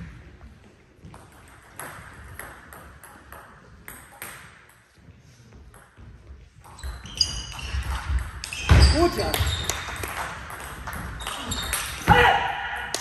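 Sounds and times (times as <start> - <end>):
table tennis ball hitting bats: 1.0 - 4.9, 6.6 - 13.0.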